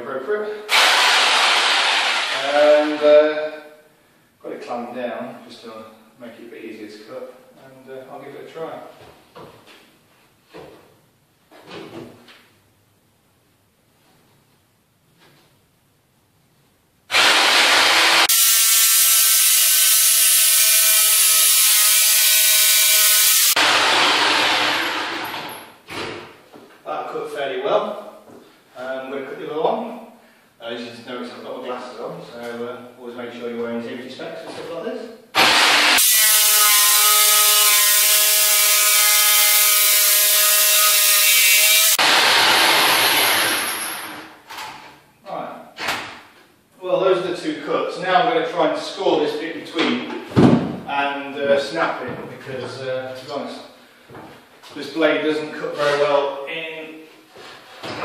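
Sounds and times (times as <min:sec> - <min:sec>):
jigsaw cutting board: 0:00.7 - 0:02.5, 0:17.1 - 0:25.5, 0:35.4 - 0:44.1
hiss: 0:18.3 - 0:23.6.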